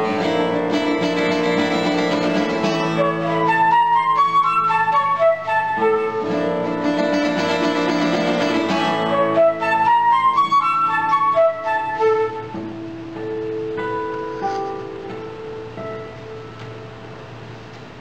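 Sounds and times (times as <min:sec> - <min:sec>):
guitar chords: 0:00.0 - 0:18.0.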